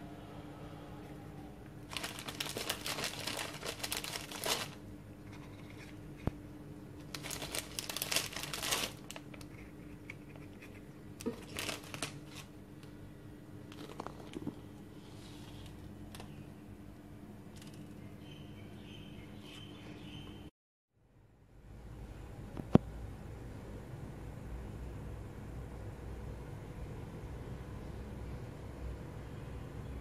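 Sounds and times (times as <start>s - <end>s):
faint steady hum: 0.0s - 30.0s
plastic packet crinkling: 1.9s - 6.0s, 7.0s - 12.6s, 13.7s - 14.6s.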